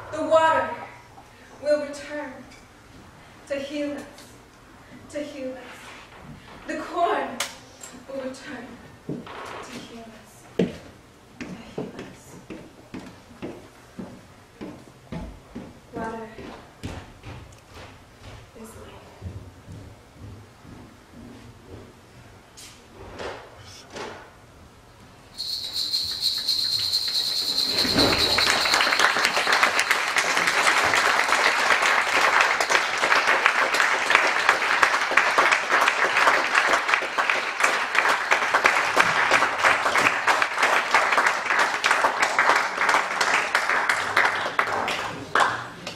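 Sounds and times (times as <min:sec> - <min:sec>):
long high whistle: 0:25.4 - 0:30.0
audience applauding: 0:25.6 - 0:45.9.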